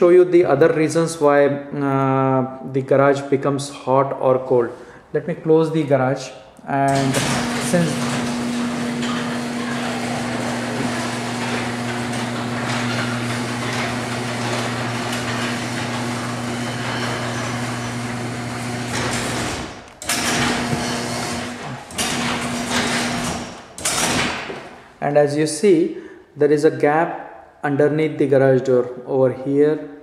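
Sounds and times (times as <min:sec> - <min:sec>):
garage door motor hum: 0:06.9 - 0:24.8
garage door rattling: 0:06.9 - 0:24.8.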